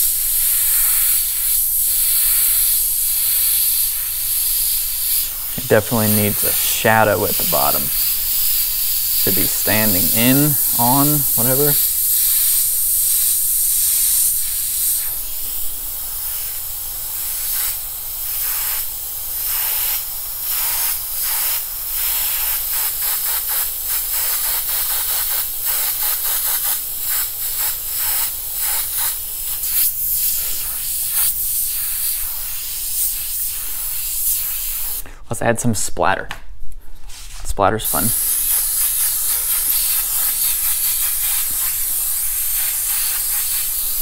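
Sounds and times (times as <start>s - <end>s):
airbrush spraying hiss: 0.0s - 35.1s, 37.3s - 44.0s.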